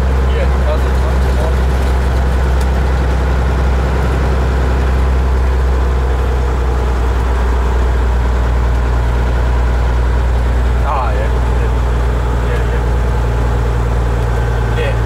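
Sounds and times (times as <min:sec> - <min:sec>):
diesel engine drone: 0:00.0 - 0:15.0.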